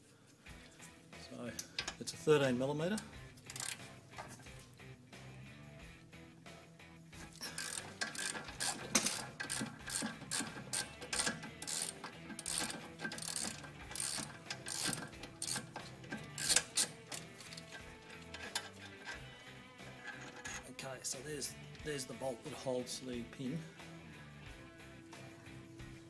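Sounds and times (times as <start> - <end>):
socket ratchet clicking: 1.6 - 2.0, 2.9 - 4.6, 7.2 - 20.7.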